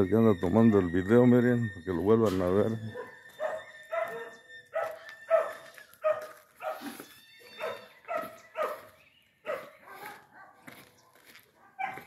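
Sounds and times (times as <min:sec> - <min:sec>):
dog barking: 0:02.9 - 0:07.0, 0:07.6 - 0:10.8, 0:11.5 - 0:12.0.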